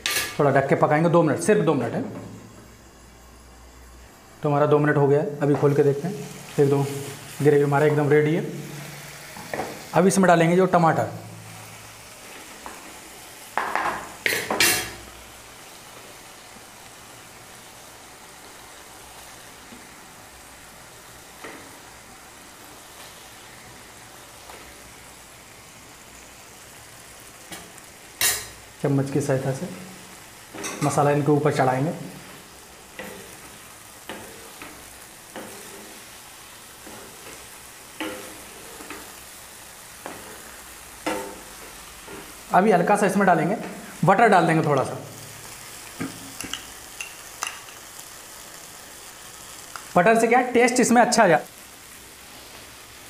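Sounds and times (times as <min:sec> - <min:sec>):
gravy sizzling in a frying pan: 0:00.0 - 0:53.0
spatula knocking and scraping pan: 0:41.0 - 0:42.3.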